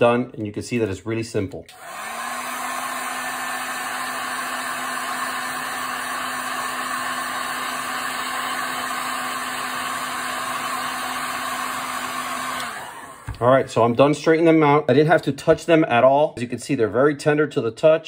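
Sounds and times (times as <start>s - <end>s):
heat gun blowing air: 1.7s - 13.4s.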